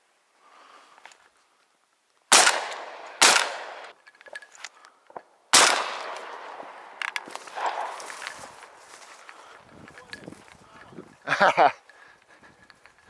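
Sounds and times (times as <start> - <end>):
shotgun shots echoing: 2.3 - 4.0, 5.5 - 8.6.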